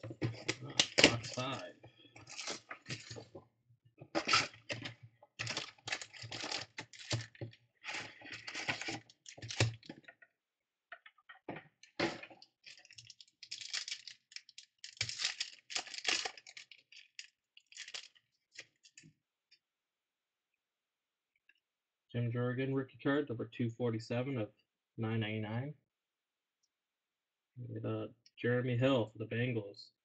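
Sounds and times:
pack being opened: 0.3s - 1.6s, 2.2s - 3.3s, 4.2s - 9.9s, 12.0s - 19.0s
foil wrappers crinkling: 0.3s - 3.3s, 4.2s - 9.9s, 12.6s - 19.0s.

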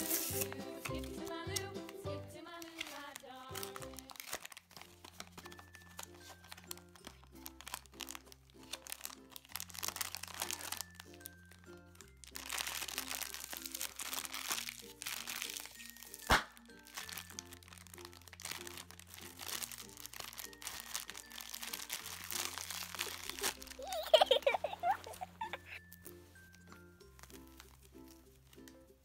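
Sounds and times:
foil packet crinkling: 0.0s - 26.6s, 27.2s - 28.7s
sharp snap: 16.3s - 16.6s.

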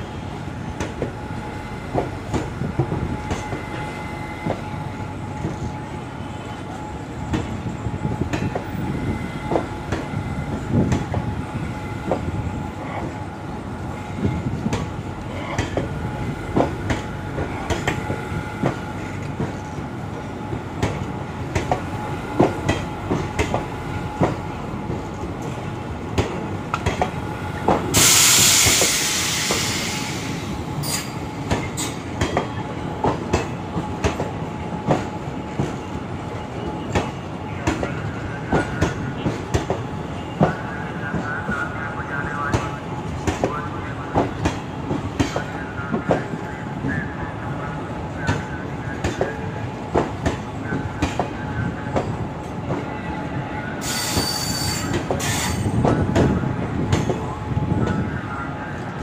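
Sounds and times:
train rumble: 0.0s - 59.0s
train wheels clicking over rail joints: 20.5s - 35.9s
loud hiss: 27.9s - 30.4s.

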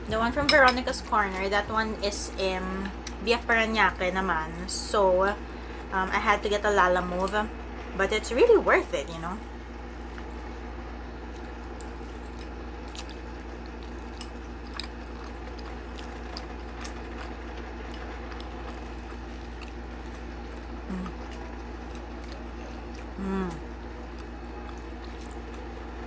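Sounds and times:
steady low hum: 0.0s - 26.0s
people chewing: 11.2s - 26.0s.

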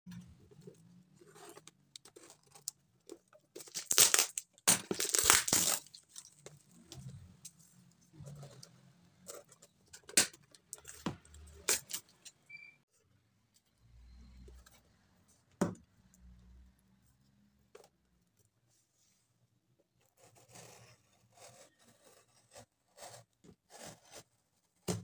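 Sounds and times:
package being cut open: 3.6s - 6.0s
packing tape tearing: 3.6s - 6.1s, 11.6s - 12.1s
plastic wrap crinkling: 3.6s - 6.6s.

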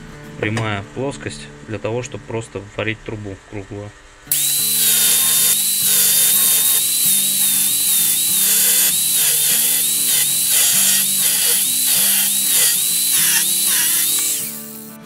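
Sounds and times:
angle grinder cutting steel: 4.3s - 15.0s
background music: 4.5s - 15.0s.

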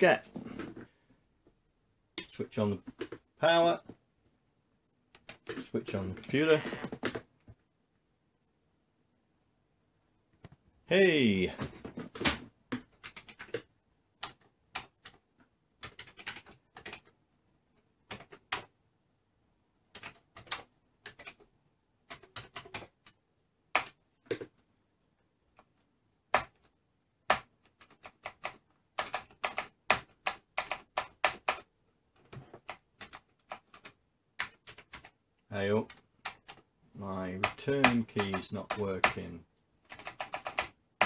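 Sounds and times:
mechanical keyboard keystrokes: 39.9s - 40.8s.

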